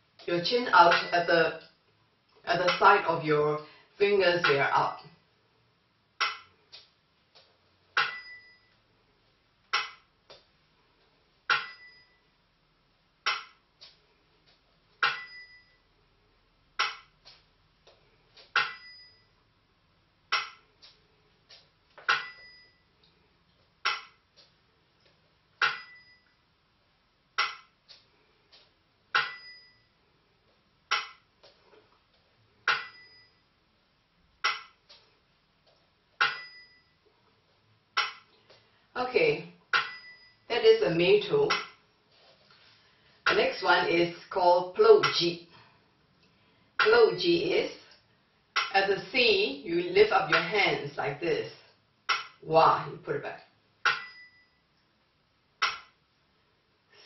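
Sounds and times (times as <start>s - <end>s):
small bell-cymbal ting: 8.0s - 8.8s, 11.6s - 12.3s, 15.0s - 15.9s, 18.6s - 19.4s, 22.2s - 22.9s, 25.7s - 26.4s, 29.2s - 30.0s, 32.7s - 33.5s, 36.2s - 37.0s, 39.8s - 40.5s, 53.9s - 54.7s.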